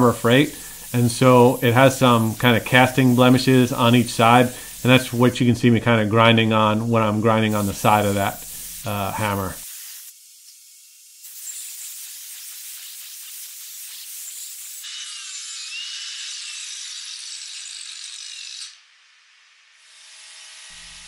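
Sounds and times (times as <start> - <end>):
angle grinder grinding steel: 0.0 - 5.5, 14.2 - 18.8, 19.8 - 21.0.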